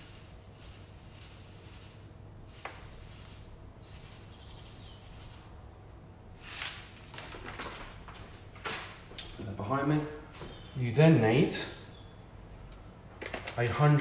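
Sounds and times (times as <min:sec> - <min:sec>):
sugar pouring into bowl: 0:00.0 - 0:05.6.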